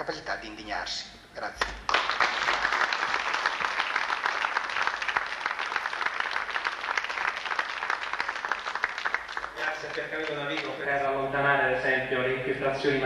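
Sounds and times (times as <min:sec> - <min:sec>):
audience applauding: 0:01.8 - 0:10.8.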